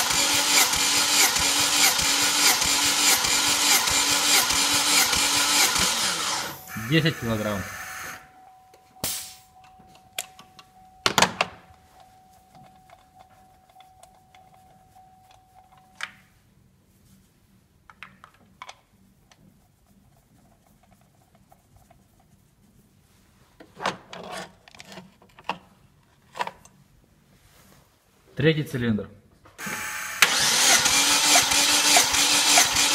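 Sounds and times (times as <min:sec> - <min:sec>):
faint steady tone: 0:06.6 - 0:16.5.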